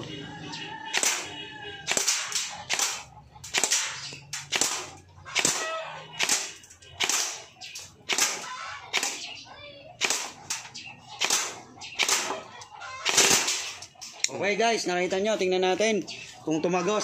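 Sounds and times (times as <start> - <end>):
airsoft gun shots: 0.9 - 1.3, 1.9 - 9.2, 10.0 - 10.6, 11.2 - 13.8.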